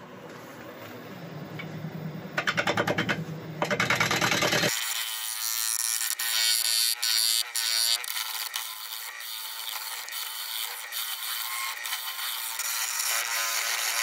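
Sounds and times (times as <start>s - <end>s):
wood lathe hum: 3.7s - 14.0s.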